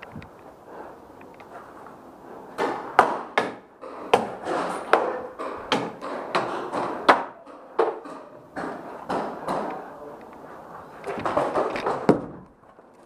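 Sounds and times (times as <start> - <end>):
paintballs striking wooden walls: 2.5 - 10.4, 11.0 - 12.6.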